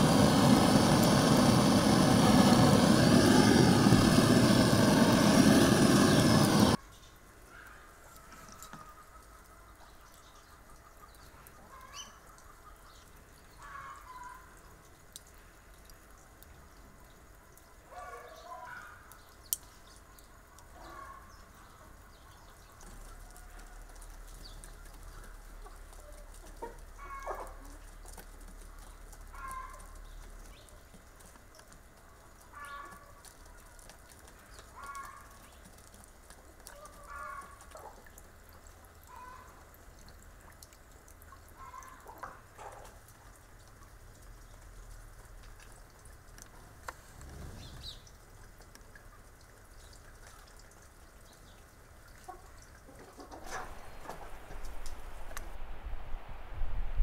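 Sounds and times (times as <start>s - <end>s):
chickens clucking: 25.6s - 28.0s, 52.3s - 54.9s.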